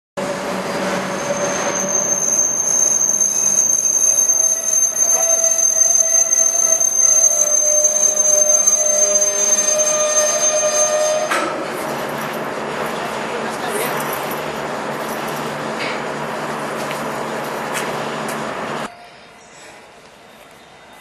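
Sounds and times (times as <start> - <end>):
train wheels squealing: 0.2 - 12.4, 18.8 - 21.0
train rumble: 0.2 - 21.0.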